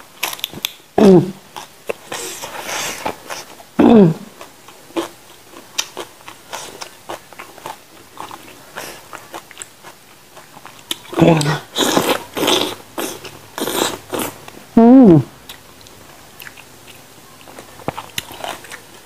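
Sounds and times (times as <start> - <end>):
chewing with wet mouth smacks: 4.4 - 14.3, 15.5 - 19.0.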